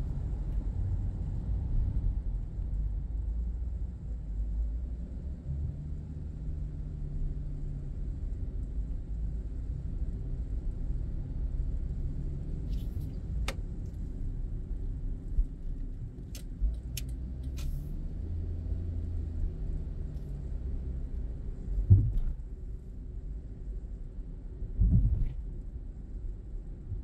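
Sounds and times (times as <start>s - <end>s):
car engine and road noise: 0.0s - 27.0s
short thump: 21.8s - 22.4s, 24.8s - 25.4s.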